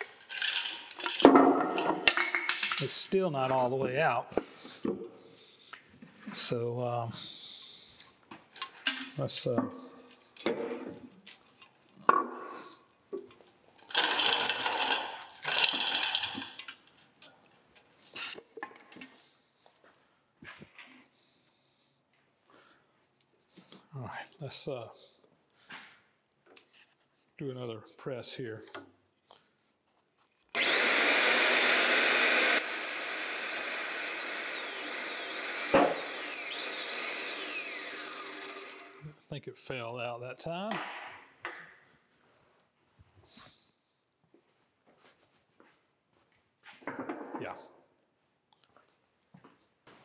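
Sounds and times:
chain and metal rattling: 0.0 - 1.3
hydraulic pump whine: 30.6 - 39.0.

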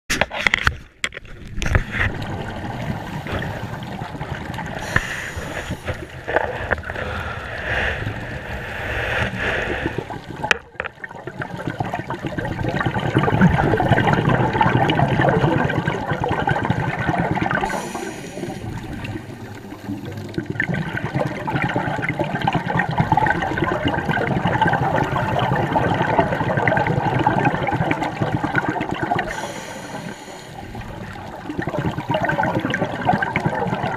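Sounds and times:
exhaled bubbles gurgling: 1.3 - 33.9
scuba diver breathing underwater: 2.8 - 10.6, 17.4 - 26.4, 28.6 - 33.8.

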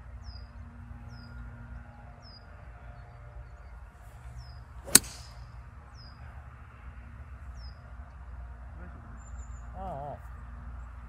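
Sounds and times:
golf club striking ball: 4.8 - 5.5.

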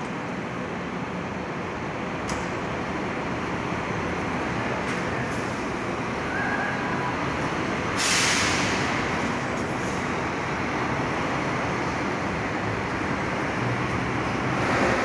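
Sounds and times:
bus engine running: 0.0 - 15.0
air brakes hissing: 7.8 - 10.1.

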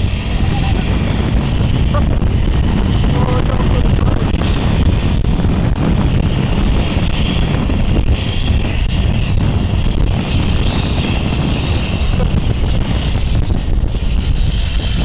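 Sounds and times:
towed bed rumbling and rushing: 0.0 - 15.0
wind buffeting microphone: 0.0 - 15.0.

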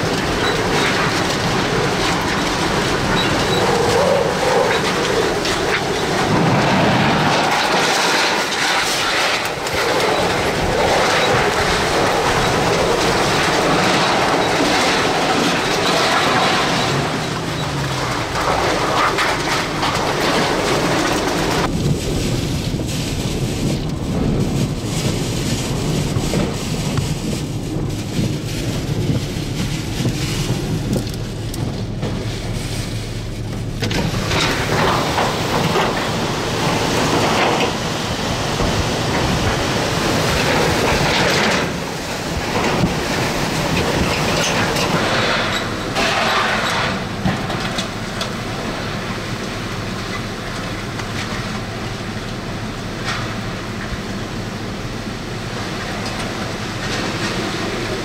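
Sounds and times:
sheet metal clattering and banging: 0.0 - 21.7, 33.8 - 48.4
hurricane winds howling: 0.0 - 58.0
rain: 0.0 - 58.0.

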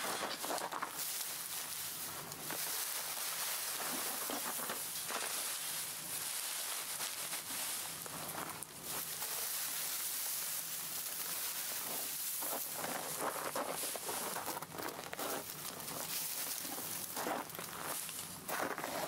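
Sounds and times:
dry grass rustling and crackling: 0.0 - 19.0
boots crunching on wet snow: 11.2 - 19.0.

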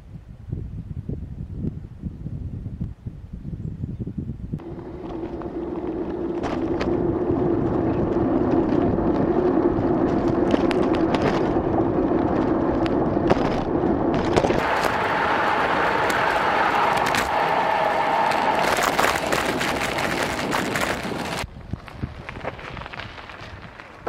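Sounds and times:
scooter wheels rolling on road: 4.6 - 24.0
clicks and knocks from bumps: 10.0 - 14.6.

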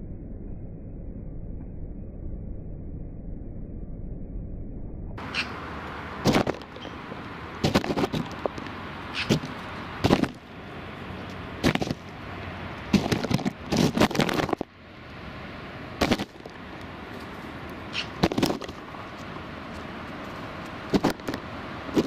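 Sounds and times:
steady background hiss: 5.2 - 22.0
bird knocking and scuffing: 7.6 - 10.4.

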